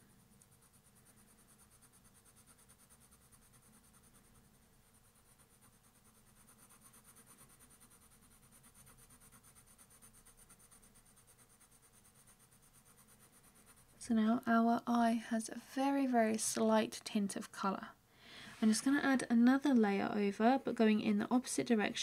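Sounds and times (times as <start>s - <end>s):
pencil scratching on paper: 0.0s - 14.0s.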